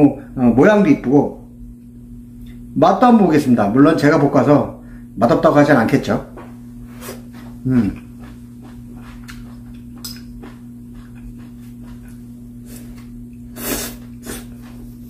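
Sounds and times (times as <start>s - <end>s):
steady low hum: 0.0s - 15.0s
person chewing: 7.0s - 14.8s
person humming mm: 7.6s - 8.1s
person slurping: 12.6s - 14.6s.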